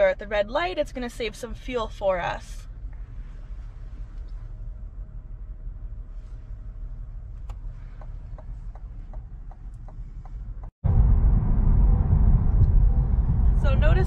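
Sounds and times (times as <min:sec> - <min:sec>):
engine and road noise rumble: 0:00.0 - 0:14.0
low cabin hum: 0:00.0 - 0:14.0.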